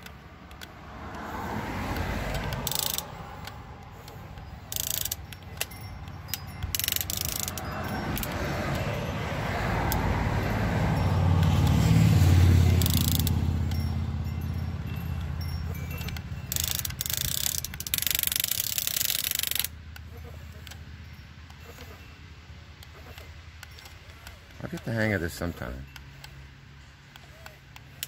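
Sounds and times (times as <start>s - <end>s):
sharp clicks: 0.0s - 8.9s, 12.6s - 13.9s, 15.9s - 21.6s
toy excavator motors whirring: 0.0s - 28.0s.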